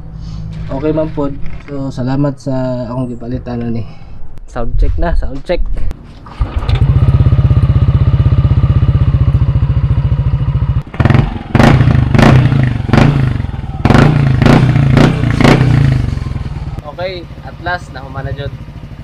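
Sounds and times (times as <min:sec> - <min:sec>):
scooter engine idling and revving: 0:06.2 - 0:19.0.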